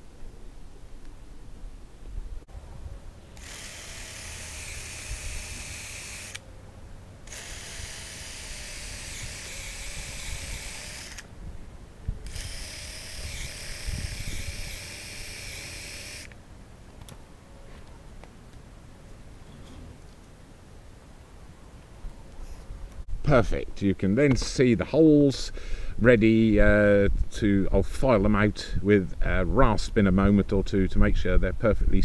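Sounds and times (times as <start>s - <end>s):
cordless drill boring into log: 3.4s - 6.4s, 7.3s - 11.3s, 12.2s - 16.4s.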